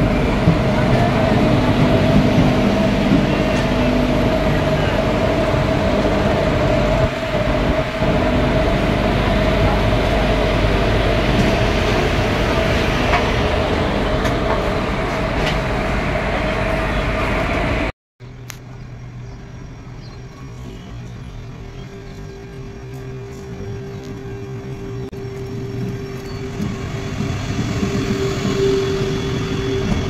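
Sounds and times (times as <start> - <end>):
diesel locomotive idling: 0.0 - 17.9.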